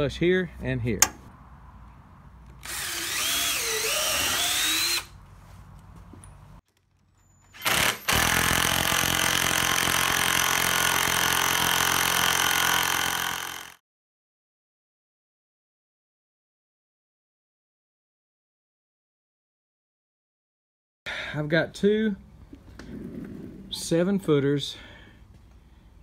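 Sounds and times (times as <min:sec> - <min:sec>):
cordless drill boring through steel: 0:02.6 - 0:05.1, 0:07.5 - 0:13.8.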